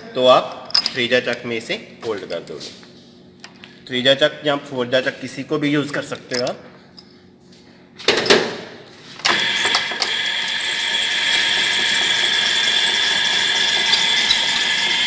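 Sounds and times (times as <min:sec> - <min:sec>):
lathe motor whining: 0:09.2 - 0:15.0.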